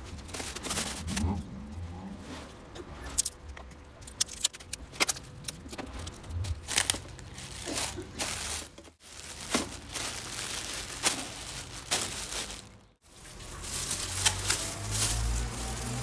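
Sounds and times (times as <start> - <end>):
plastic bag crinkling: 6.5 - 16.0.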